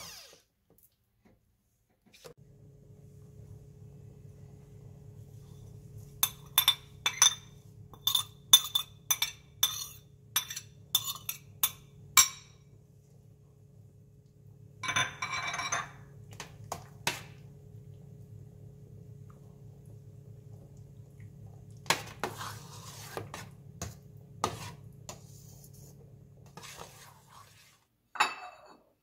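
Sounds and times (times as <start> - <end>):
spoon scraping metal pot: 6.2 - 11.8
spoon tapping glass bowl: 6.2 - 12.6.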